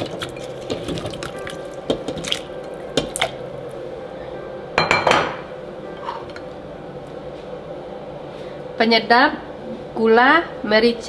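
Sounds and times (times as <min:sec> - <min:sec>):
steady hum: 0:00.0 - 0:11.0
kitchenware clinking: 0:04.8 - 0:06.5.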